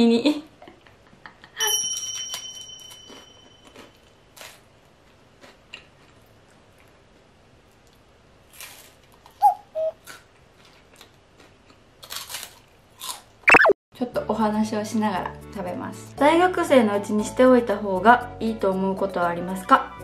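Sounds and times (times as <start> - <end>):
high ringing tone: 1.6 - 4.0
crunching cracker: 7.9 - 9.4, 10.0 - 13.3
short pitched blips: 13.5 - 13.8.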